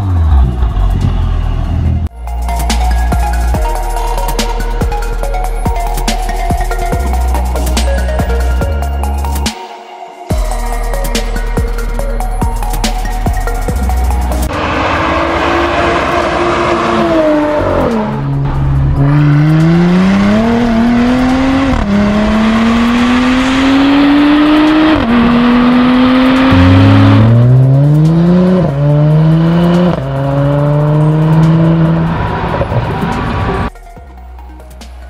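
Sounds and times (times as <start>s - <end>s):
car exhaust accelerating through gears: 0.0s - 2.1s, 14.0s - 33.7s.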